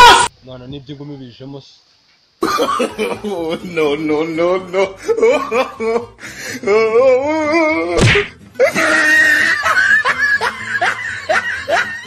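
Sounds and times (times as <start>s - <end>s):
sharp punch hit: 8.0s - 8.3s.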